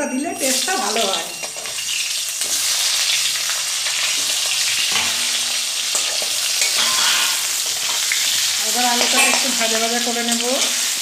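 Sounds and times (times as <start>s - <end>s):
potatoes sizzling in hot oil: 0.0s - 11.0s
spatula scraping pan: 1.4s - 10.0s.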